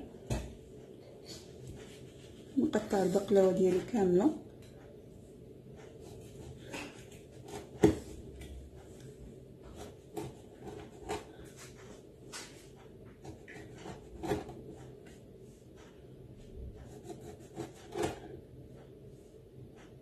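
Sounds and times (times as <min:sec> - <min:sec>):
knife slicing pastry: 0:13.2 - 0:15.0, 0:16.8 - 0:18.3.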